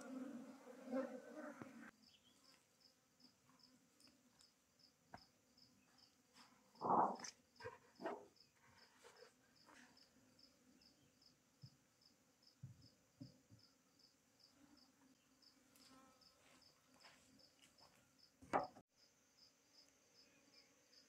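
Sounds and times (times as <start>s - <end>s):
faint honeybee buzzing: 0.0s - 4.3s
insect chirping: 1.9s - 21.0s.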